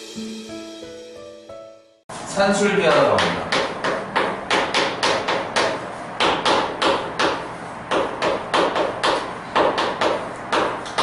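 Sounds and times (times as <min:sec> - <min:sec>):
chalk tapping on chalkboard: 0:02.9 - 0:11.0.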